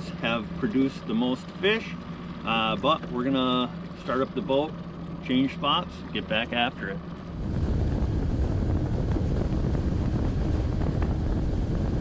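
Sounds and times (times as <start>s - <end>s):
outboard motor running: 0.0s - 12.0s
wind noise on microphone: 7.3s - 12.0s.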